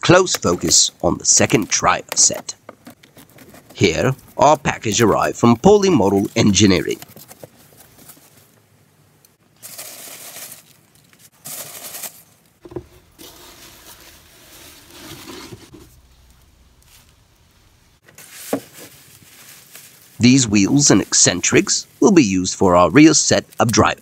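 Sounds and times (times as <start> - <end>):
foam packing peanuts rustling: 9.5 - 17.3, 18.0 - 22.0
plastic wrap crinkling: 9.5 - 17.4, 18.1 - 20.2.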